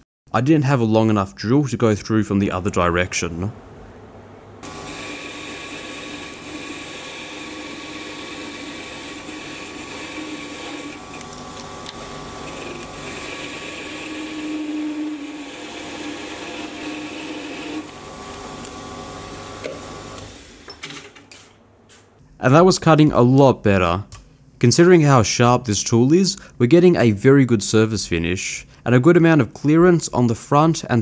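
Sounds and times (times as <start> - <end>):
lathe tool cutting steel: 4.6 - 18.7
lathe motor whine: 4.6 - 20.7.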